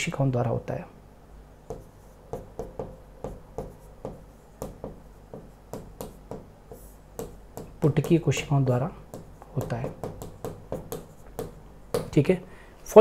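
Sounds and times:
pen scratching on a board: 0:01.7 - 0:08.5, 0:09.1 - 0:12.1.

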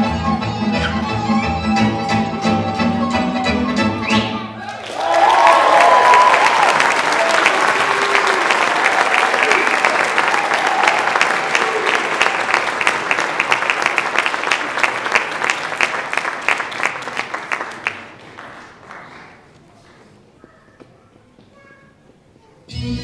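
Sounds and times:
audience applauding: 0:04.6 - 0:20.0.

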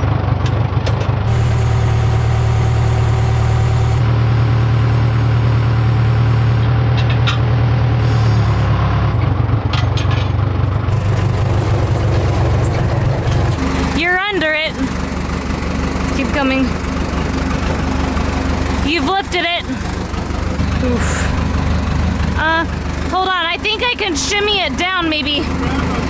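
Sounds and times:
diesel engine running: 0:00.0 - 0:26.0
machine clanks: 0:06.9 - 0:07.6, 0:09.2 - 0:11.4.

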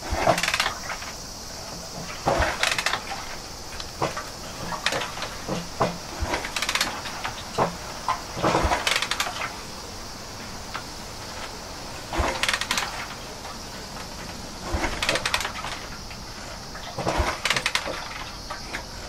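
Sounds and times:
kick starter clunking and rattling: 0:01.9 - 0:09.5, 0:12.1 - 0:13.1, 0:14.0 - 0:16.3, 0:16.9 - 0:18.9.

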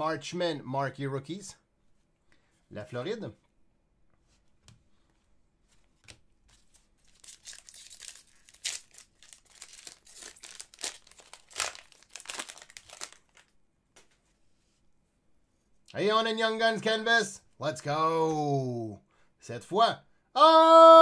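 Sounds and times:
wrapper crinkling and tearing: 0:06.5 - 0:13.6.

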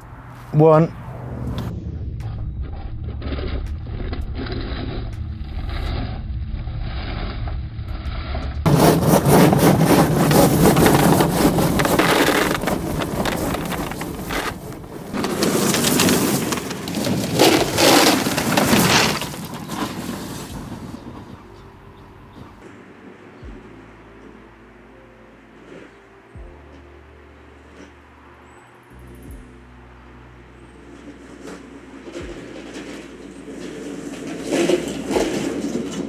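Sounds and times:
wheels crunching on rough ground: 0:08.6 - 0:24.4, 0:30.4 - 0:36.0.

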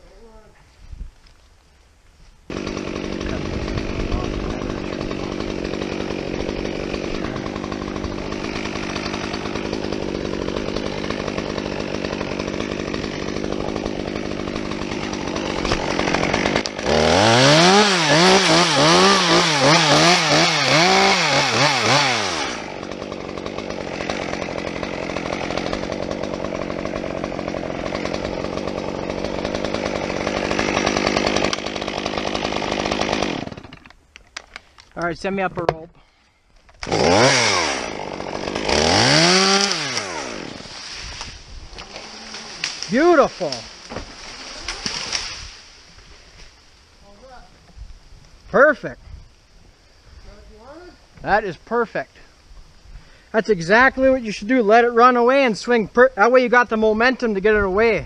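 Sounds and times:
chainsaw idling and revving: 0:02.5 - 0:33.9, 0:36.7 - 0:46.5.

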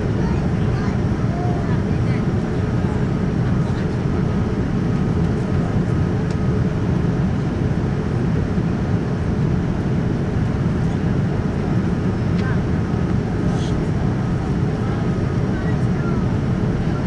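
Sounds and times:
airplane cabin rumble: 0:00.0 - 0:17.0.

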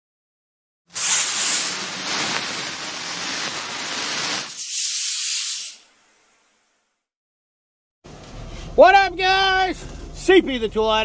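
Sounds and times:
spray hiss sound effect: 0:00.9 - 0:06.6.

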